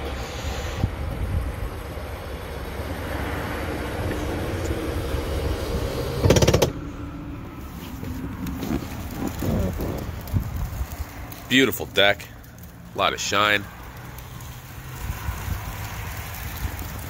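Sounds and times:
wind on microphone: 8.3 - 11.1.

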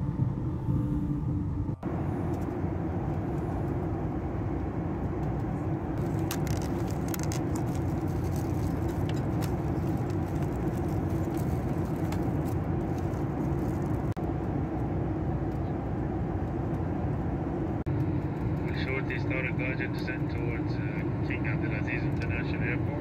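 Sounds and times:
airliner cabin roar: 0.0 - 23.0
foil lid crinkling: 6.0 - 14.1.

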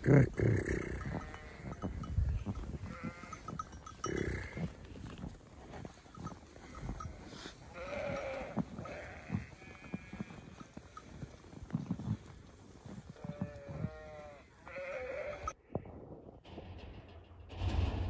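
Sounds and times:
sheep bleating: 0.0 - 5.2, 5.9 - 12.1, 12.9 - 15.6.

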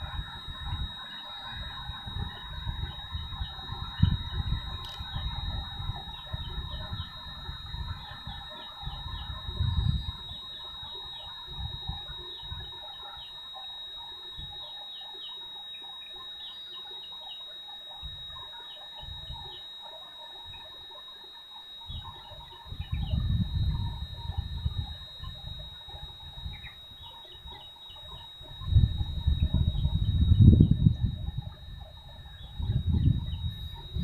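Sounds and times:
wind rumble on microphone: 0.0 - 12.8, 21.9 - 26.7, 27.4 - 34.0
high-pitched insect whine: 0.0 - 34.0.

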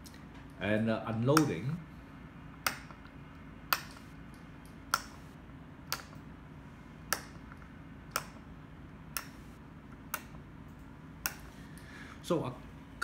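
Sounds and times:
rotary switch clicking: 3.7 - 6.3, 7.1 - 8.4, 9.1 - 11.5.

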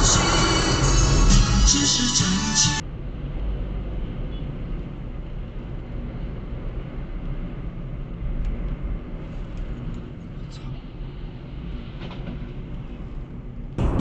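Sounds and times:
music: 0.0 - 2.8
car engine and road noise: 0.0 - 14.0.

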